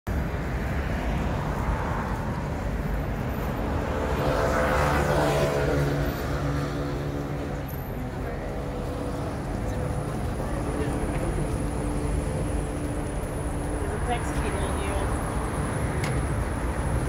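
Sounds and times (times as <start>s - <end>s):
bus passing by: 0.1s - 17.0s
traffic rumble: 0.1s - 17.0s.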